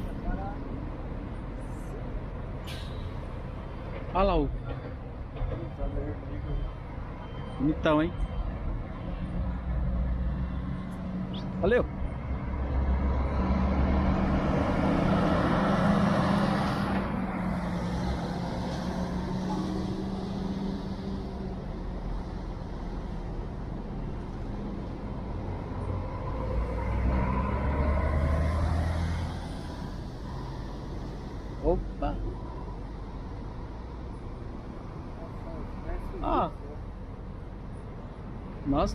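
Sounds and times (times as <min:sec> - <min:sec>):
traffic hum: 0:00.0 - 0:38.9
coach diesel engine passing: 0:10.0 - 0:36.2.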